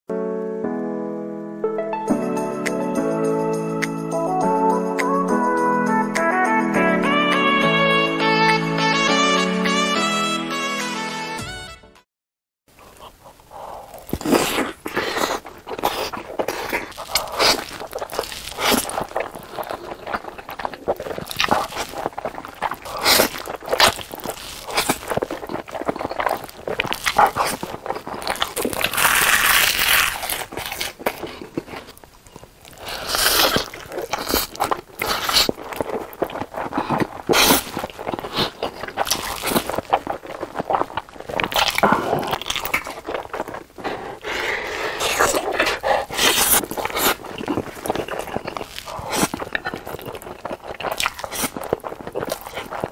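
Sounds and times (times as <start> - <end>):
crunching crackling food: 12.7 - 52.9
chewing with wet smacks: 12.8 - 52.9
slurping noodles: 12.8 - 52.9.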